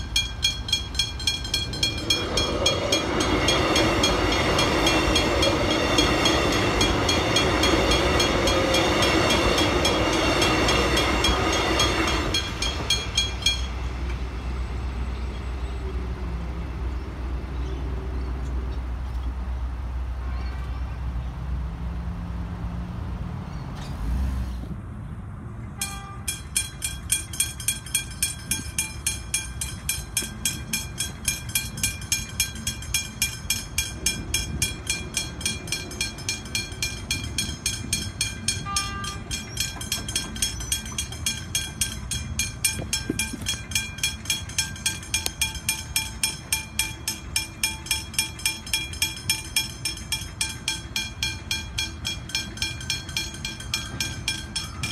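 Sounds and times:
level crossing bell ringing: 0.0 - 13.8, 25.8 - 54.9.

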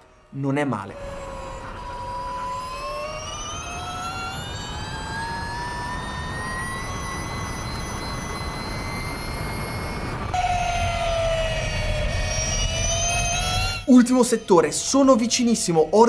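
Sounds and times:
electric motor whine rising: 0.0 - 16.0
wind rushing on microphone: 1.1 - 13.8.

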